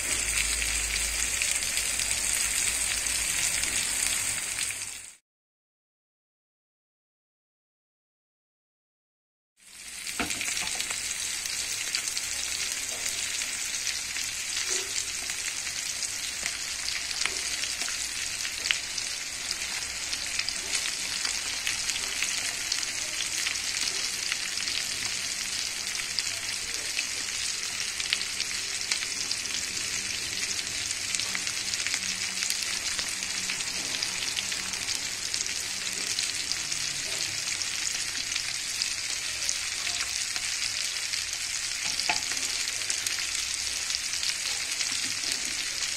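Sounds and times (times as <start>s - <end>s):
fish frying in hot oil: 0.0s - 5.2s, 9.6s - 45.9s.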